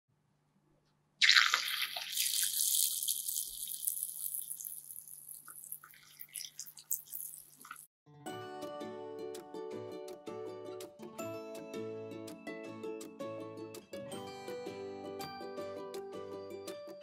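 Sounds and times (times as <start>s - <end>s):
oil crackling and popping: 1.2s - 7.9s
tofu sizzling in hot oil: 1.2s - 7.9s.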